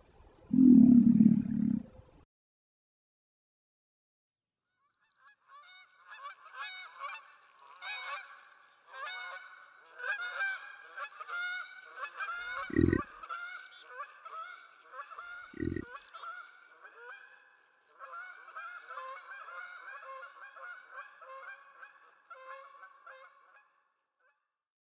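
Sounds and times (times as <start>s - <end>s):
waterfowl honking: 5.5s - 23.8s.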